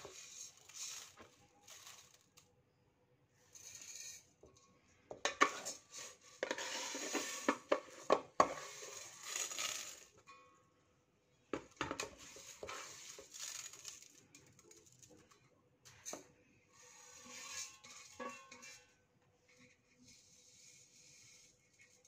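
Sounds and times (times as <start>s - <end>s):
rice pouring into metal bowl: 0.0s - 2.4s, 3.5s - 4.3s, 5.4s - 10.2s, 11.8s - 15.4s, 16.7s - 18.8s, 19.5s - 22.0s
cup scraping against bowl: 5.3s - 10.0s, 16.8s - 18.9s.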